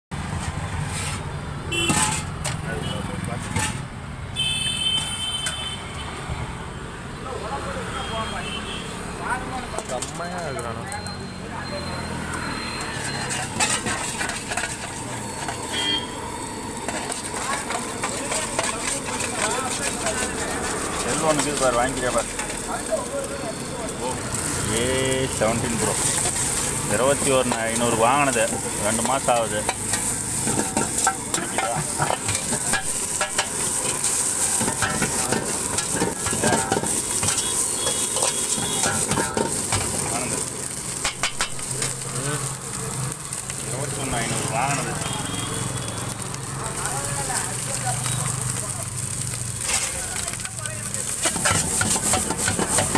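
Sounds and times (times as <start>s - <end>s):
low traffic hum: 0.1s - 52.9s
oil sizzling: 0.1s - 52.9s
spatula scraping a wok: 0.2s - 4.0s, 12.0s - 42.5s, 47.4s - 52.9s
vehicle horn: 1.7s - 3.1s, 4.4s - 6.2s, 7.9s - 9.0s, 15.6s - 16.2s, 37.1s - 39.2s, 44.7s - 46.2s.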